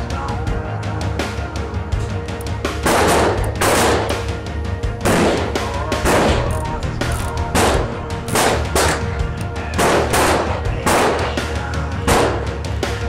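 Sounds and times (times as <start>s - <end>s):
background music with bass: 0.0s - 13.0s
revolver gunshots with echo: 2.8s - 4.2s, 5.0s - 6.5s, 7.5s - 9.1s, 9.8s - 12.5s.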